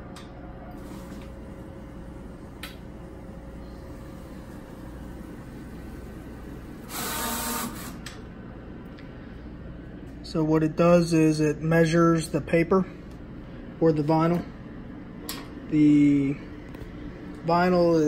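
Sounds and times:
printer motor whir: 0.0 - 8.2
printer machine hum: 0.0 - 8.7.

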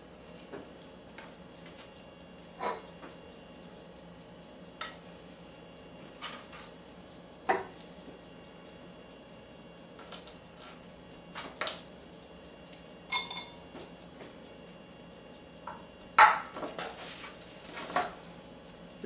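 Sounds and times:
dishes and utensils clinking: 13.1 - 13.7.

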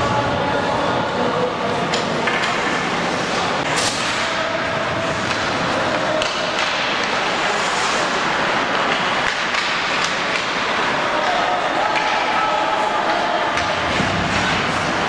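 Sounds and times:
skating and crowd noise: 0.0 - 15.0
stick hitting puck: 5.2 - 15.0.

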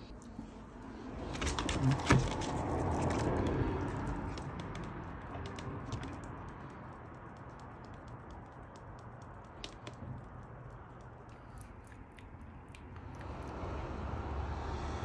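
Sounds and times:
beak clicking and tapping: 1.7 - 13.4.

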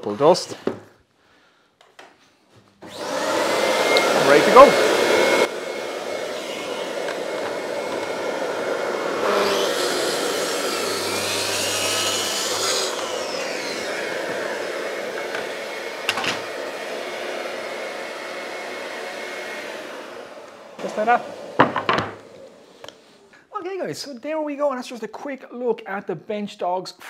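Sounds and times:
track saw cutting a board: 2.8 - 22.2
dust extractor running: 2.8 - 22.7.

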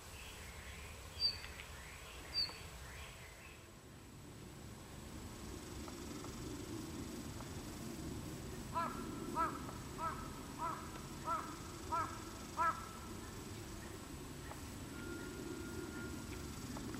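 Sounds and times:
crow cawing: 8.7 - 13.1.

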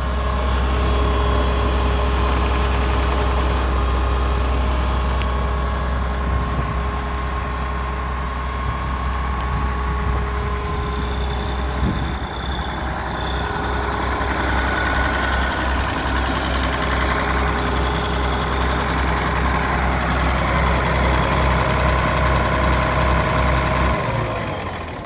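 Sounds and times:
tractor diesel engine idling: 0.0 - 25.0.

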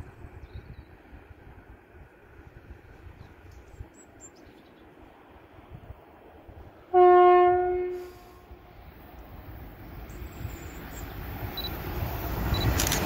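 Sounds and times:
faint wind rumble: 0.0 - 13.0
train horn blast: 6.9 - 8.6.

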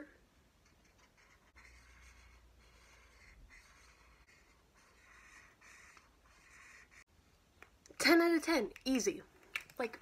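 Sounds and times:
marker scratching on paper: 0.6 - 7.1.

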